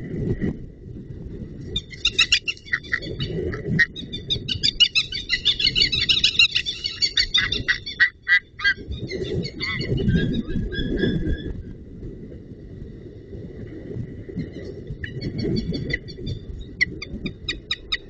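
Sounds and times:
low rumbling noise: 0.0s - 18.0s
eagles calling: 1.9s - 8.8s.

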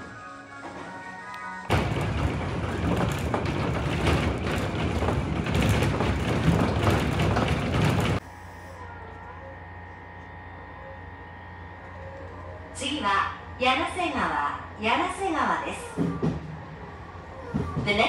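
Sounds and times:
train wheels clattering on rails: 1.7s - 8.2s, 14.9s - 18.0s.

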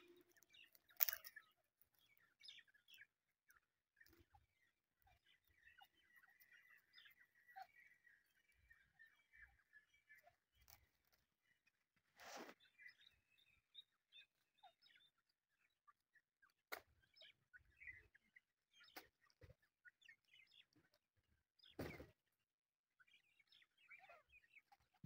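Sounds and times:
bird chicks chirping softly: 0.0s - 25.0s
brief rustles: 12.2s - 12.6s.

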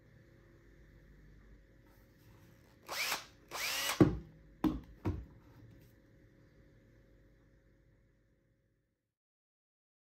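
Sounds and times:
cordless drill motor spinning: 2.8s - 4.0s.

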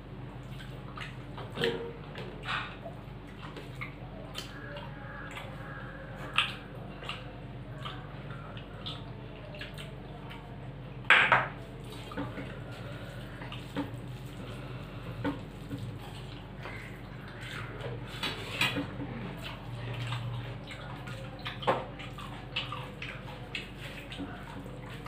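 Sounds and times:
fingers mixing food on metal plates: 0.5s - 25.0s.

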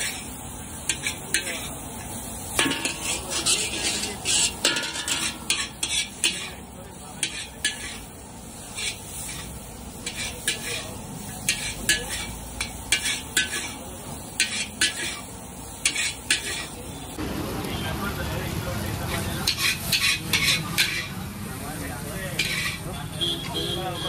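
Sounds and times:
metal spatula scraping a wok: 0.0s - 17.0s, 19.1s - 21.2s, 22.2s - 23.4s
food sizzling: 0.0s - 24.0s.

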